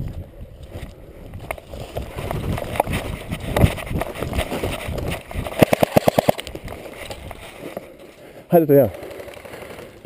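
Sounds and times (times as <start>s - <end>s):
clothing rubbing on camera: 1.7s - 8.0s.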